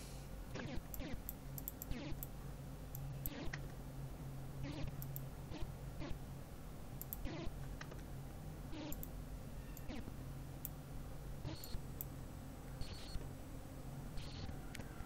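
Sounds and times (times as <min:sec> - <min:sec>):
faint low hum: 0:00.0 - 0:15.0
computer mouse clicks: 0:00.6 - 0:02.3, 0:02.9 - 0:03.6, 0:07.0 - 0:08.0, 0:08.8 - 0:09.1, 0:11.5 - 0:12.1.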